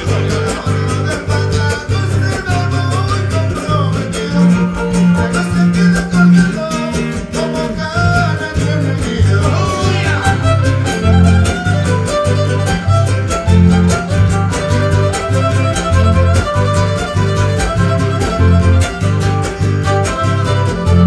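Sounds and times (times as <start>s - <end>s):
live folk band playing: 0.0s - 21.0s
fiddle melody: 9.4s - 21.0s.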